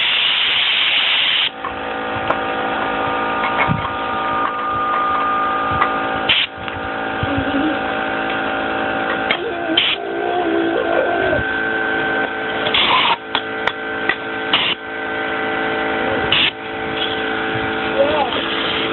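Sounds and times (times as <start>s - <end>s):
compressed air blasts: 0.0s - 1.6s, 6.3s - 6.6s, 12.7s - 13.2s, 14.5s - 14.8s, 16.3s - 17.2s
steady machine hum: 0.0s - 18.9s.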